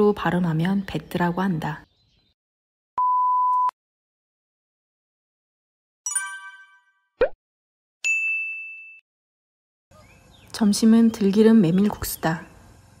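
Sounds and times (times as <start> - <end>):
bright ringing chime: 6.1 - 7.0.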